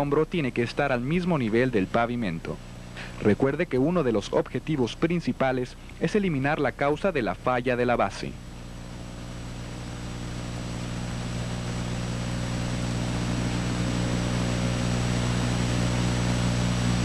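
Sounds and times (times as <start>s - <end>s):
heavy machine engine droning: 8.4s - 17.0s.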